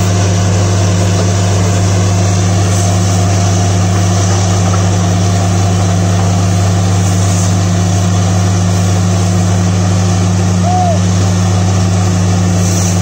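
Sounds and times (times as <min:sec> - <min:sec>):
drilling rig engine running: 0:00.0 - 0:13.0
hiss of air and water spraying: 0:06.5 - 0:08.1, 0:12.5 - 0:13.0.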